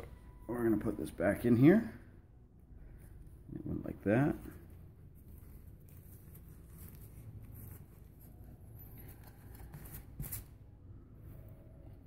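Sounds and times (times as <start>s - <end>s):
packing material rustling and scraping: 4.4s - 10.7s.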